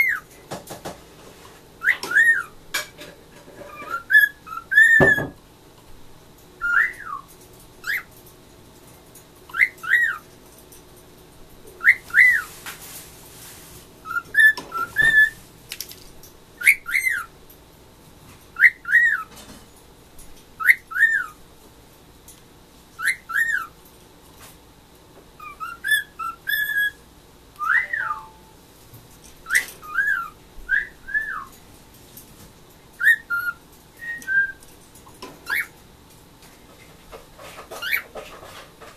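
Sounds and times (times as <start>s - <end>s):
cockatiel whistling: 0.0s - 0.2s, 1.8s - 2.6s, 3.7s - 5.4s, 6.6s - 8.1s, 9.5s - 10.2s, 11.8s - 12.5s, 14.0s - 15.4s, 16.6s - 17.3s, 18.6s - 19.3s, 20.6s - 21.4s, 23.0s - 23.7s, 25.4s - 27.0s, 27.6s - 28.5s, 29.4s - 31.5s, 33.0s - 34.6s.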